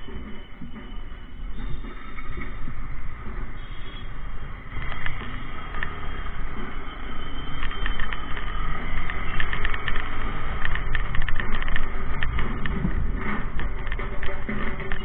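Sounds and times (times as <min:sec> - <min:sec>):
motorcycle engine and road rumble: 0:02.4 - 0:15.0
sharp rapid clicks: 0:07.2 - 0:15.0
wind on microphone: 0:07.6 - 0:15.0.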